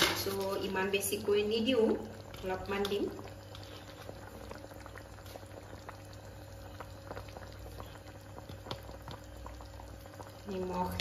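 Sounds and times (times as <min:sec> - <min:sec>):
low steady hum: 0:00.0 - 0:11.0
stew bubbling and popping: 0:00.0 - 0:11.0.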